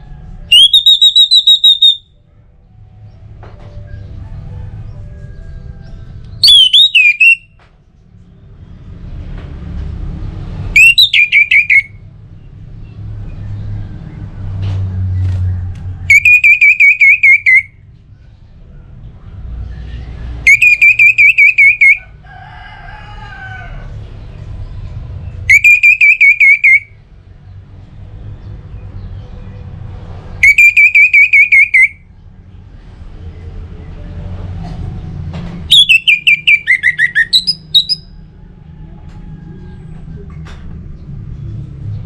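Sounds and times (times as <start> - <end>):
thrush whistled song: 0.5 - 2.2, 6.3 - 7.6, 10.7 - 12.0, 16.1 - 17.8, 19.6 - 22.1, 25.4 - 27.0, 30.4 - 32.1, 35.7 - 38.2.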